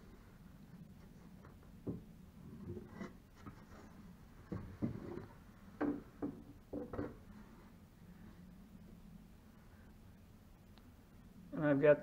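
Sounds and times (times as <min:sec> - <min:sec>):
hollow wooden knocks: 0:01.4 - 0:03.6, 0:04.4 - 0:07.2.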